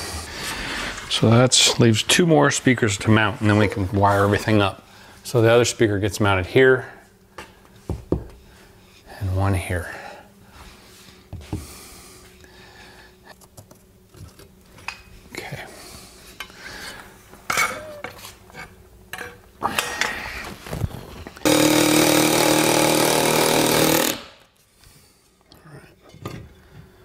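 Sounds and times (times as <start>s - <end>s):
cordless power driver running: 21.4s - 24.4s.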